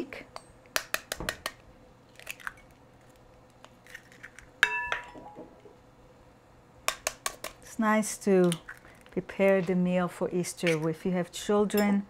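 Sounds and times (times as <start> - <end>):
fork clinking on glass bowl: 4.6 - 5.2.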